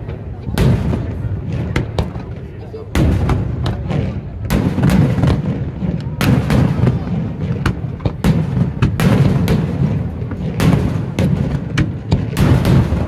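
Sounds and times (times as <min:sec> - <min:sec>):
fireworks bangs: 0:00.0 - 0:13.0.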